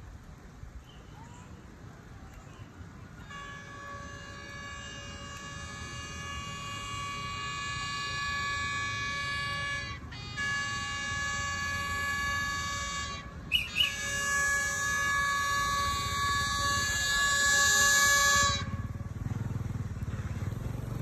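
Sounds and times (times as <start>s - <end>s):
low engine rumble: 0.0s - 21.0s
train horn multi-tone blast: 3.1s - 19.7s
short high chirps: 13.5s - 14.0s.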